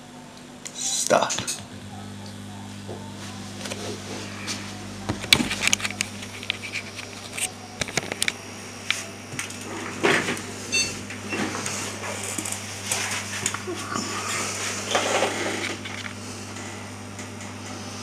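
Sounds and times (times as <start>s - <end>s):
low steady hum: 0.0s - 18.0s
high electronic beep: 10.7s - 11.0s.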